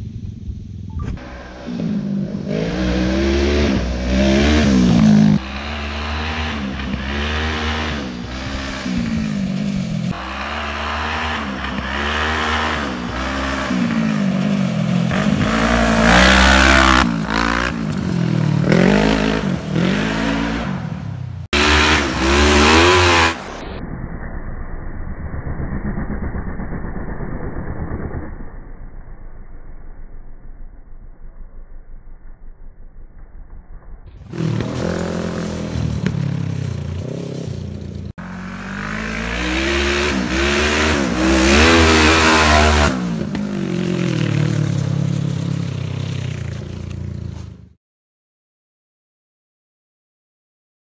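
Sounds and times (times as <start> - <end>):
go-kart engine revving: 1.2 - 23.8, 34.2 - 46.8.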